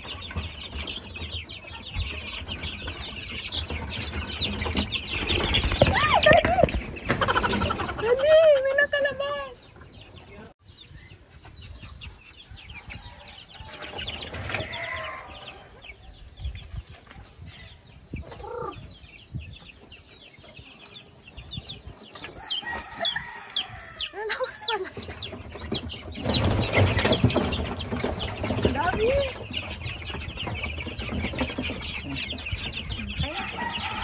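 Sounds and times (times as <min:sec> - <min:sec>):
chickens clucking: 0:00.0 - 0:34.0
chicks peeping: 0:00.0 - 0:34.0
wings flapping: 0:02.2 - 0:08.2, 0:25.3 - 0:32.7.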